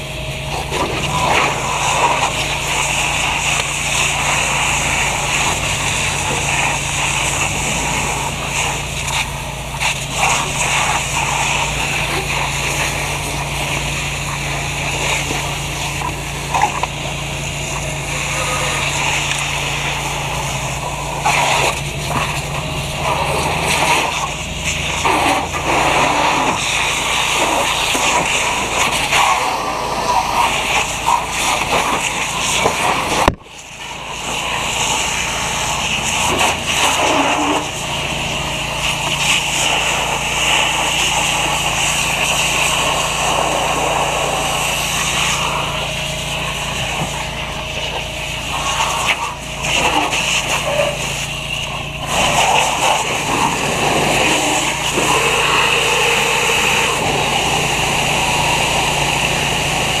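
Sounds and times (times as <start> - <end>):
engine humming: 0.0 - 60.0
fire hose spraying water: 0.0 - 60.0.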